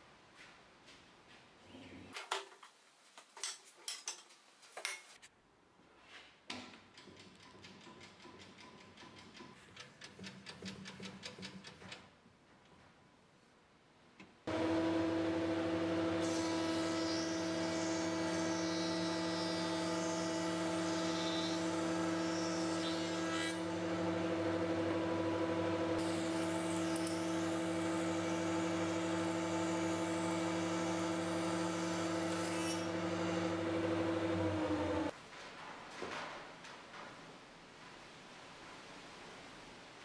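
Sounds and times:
planer running hum: 0:14.5 - 0:22.9, 0:23.5 - 0:32.2, 0:32.8 - 0:35.1.

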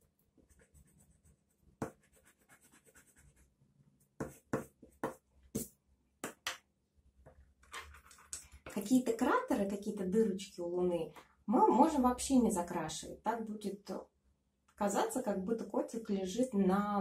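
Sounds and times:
pencil scratching on paper: 0:00.1 - 0:03.5, 0:04.2 - 0:05.7, 0:07.7 - 0:08.3.

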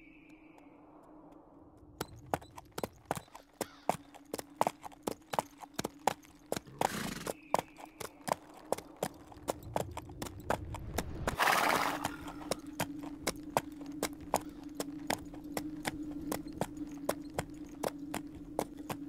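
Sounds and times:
hooves clip-clopping on hard ground: 0:01.8 - 0:19.0
steady low hum: 0:12.0 - 0:19.0.

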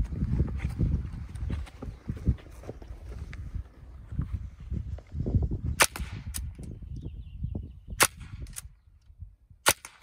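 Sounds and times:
air rifle shots cracking: 0:05.8 - 0:06.6, 0:09.6 - 0:10.0.

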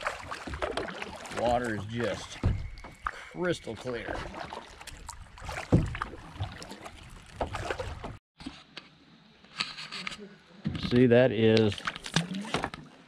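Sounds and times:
paddle knocking against hull: 0:00.0 - 0:03.1, 0:04.2 - 0:08.2
moving water: 0:00.0 - 0:08.2, 0:09.8 - 0:13.0
paddle splashes: 0:00.0 - 0:08.2, 0:11.6 - 0:13.0.

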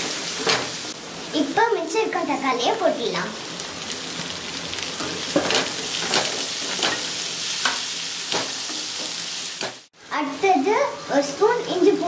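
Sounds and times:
vegetables sizzling in oil: 0:00.0 - 0:12.0
spoon scraping and knocking pan: 0:05.0 - 0:09.9.

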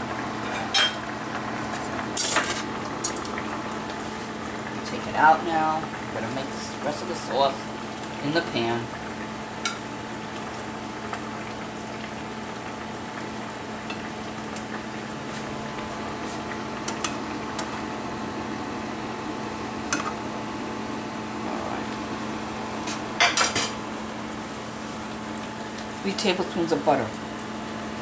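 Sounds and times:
dishes and utensils clinking: 0:00.4 - 0:01.0, 0:22.9 - 0:23.8
clatter of dishes: 0:22.9 - 0:23.8.

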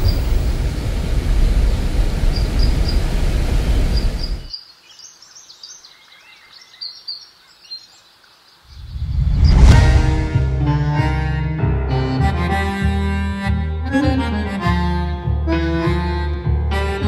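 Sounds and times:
birds chirping: 0:02.0 - 0:09.6
loud low rumble: 0:08.8 - 0:11.8.

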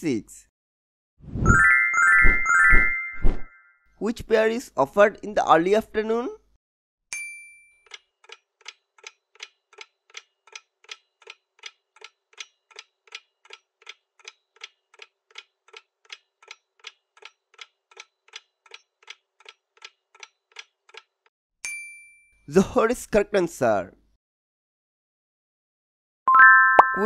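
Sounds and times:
clock-like timer ticking: 0:07.8 - 0:21.3.

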